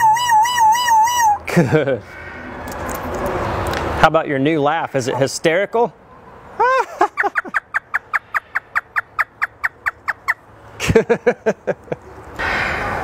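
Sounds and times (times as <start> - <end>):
parrot laughing: 6.6 - 12.0.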